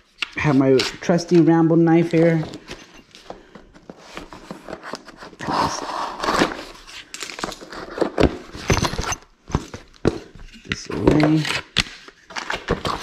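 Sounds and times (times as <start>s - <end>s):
cardboard crackling: 3.5s - 13.0s.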